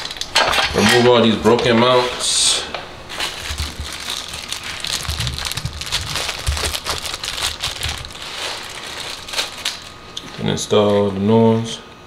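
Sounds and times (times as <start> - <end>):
plastic crackling and clicking: 3.3 - 9.9.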